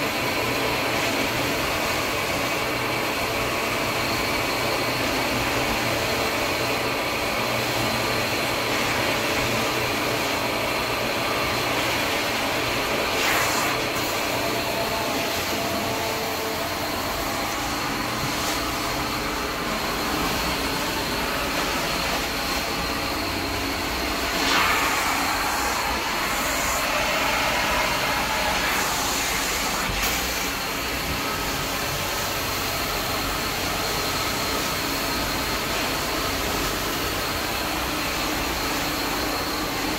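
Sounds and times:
carpet extraction vacuum running: 0.0 - 39.9.

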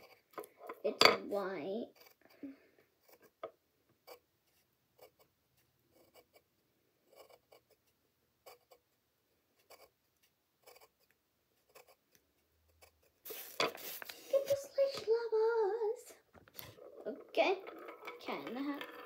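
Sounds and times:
pencil scratching on paper: 0.0 - 0.3, 1.8 - 2.3, 3.0 - 3.4, 4.0 - 5.3, 5.9 - 6.5, 7.1 - 8.8, 9.6 - 10.0, 10.6 - 12.1, 12.7 - 14.9.

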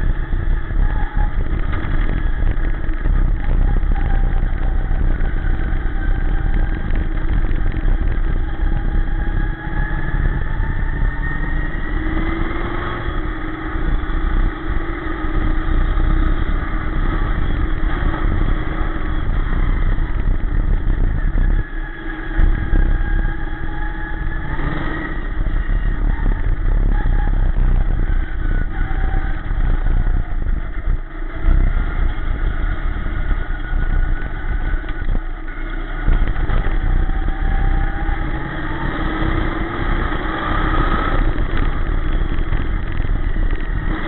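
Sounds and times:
race car engine at racing speed: 0.0 - 44.0.

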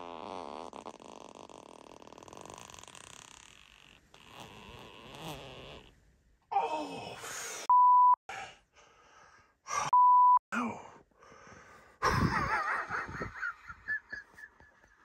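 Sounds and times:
censor bleeps: 7.7 - 8.2.

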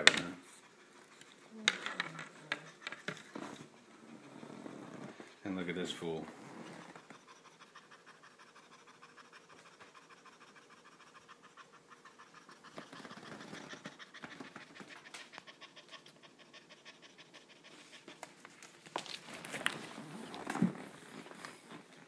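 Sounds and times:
cat panting: 0.4 - 1.5, 6.0 - 18.8.

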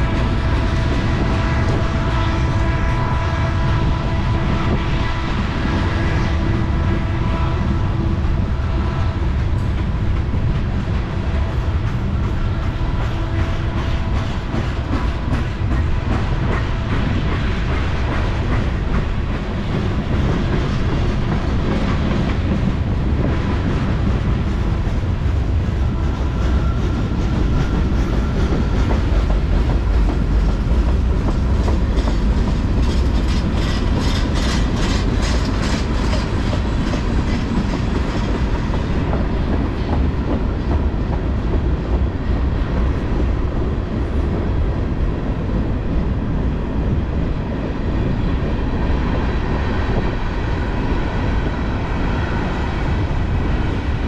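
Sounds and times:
loud train rumble: 0.0 - 54.0
train wheels clicking over rail joints: 9.3 - 44.5.

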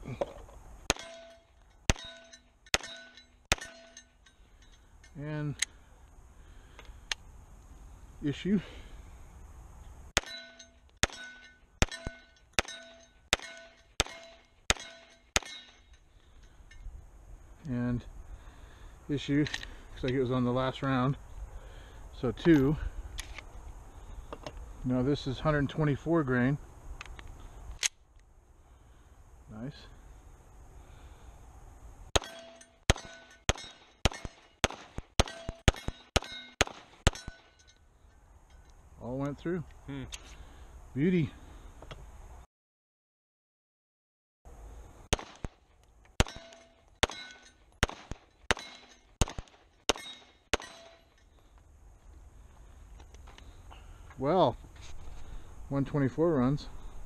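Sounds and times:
steel target clanging: 0.9 - 5.3, 10.2 - 16.9, 32.2 - 37.8, 46.2 - 49.2, 49.9 - 51.2
pistol shots: 11.0 - 15.7, 32.2 - 37.4, 45.1 - 45.6, 46.2 - 51.0.

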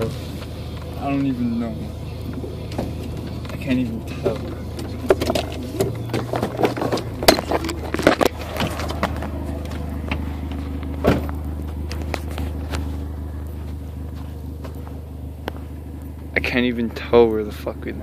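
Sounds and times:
car engine running: 0.0 - 18.0
knocks and crackles: 2.3 - 16.3.

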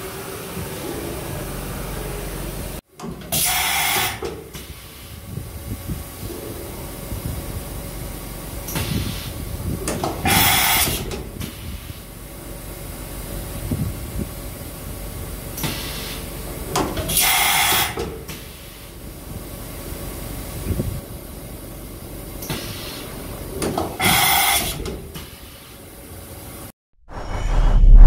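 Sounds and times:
compressed air hisses: 3.3 - 5.4, 8.7 - 9.5, 10.2 - 12.2, 15.6 - 16.3, 17.1 - 19.0, 22.4 - 23.2, 24.0 - 25.9.

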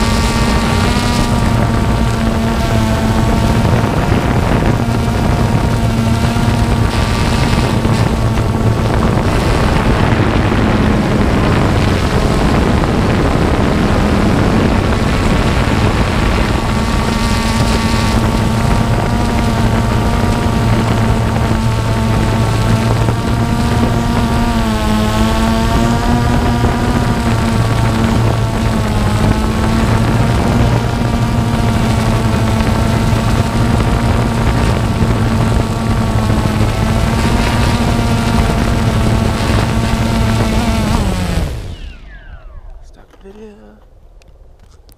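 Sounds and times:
drone motors humming: 0.0 - 44.9
wind buffeting microphone: 0.0 - 44.9.

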